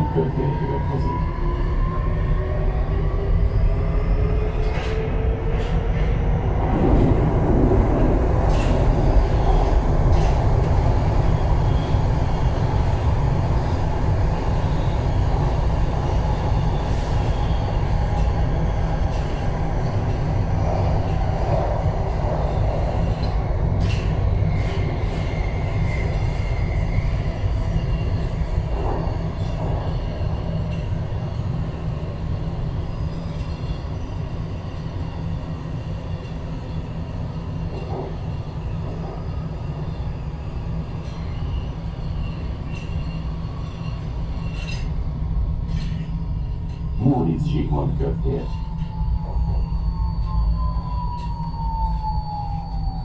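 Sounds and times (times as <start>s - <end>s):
train wheels rumbling on rails: 0.0s - 53.0s
faint high squeal: 45.7s - 53.0s.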